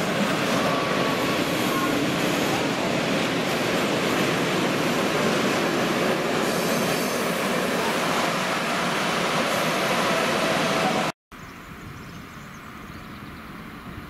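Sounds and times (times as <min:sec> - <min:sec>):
freight train wheels rumbling on rail: 0:00.0 - 0:11.1.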